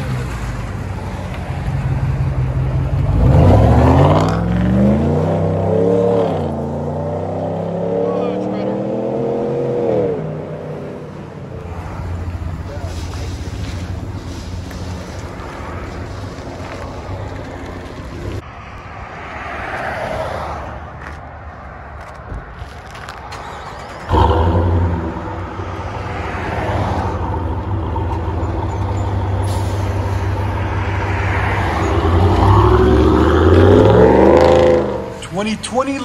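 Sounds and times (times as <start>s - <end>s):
truck exhaust rumble: 23.6s - 36.0s.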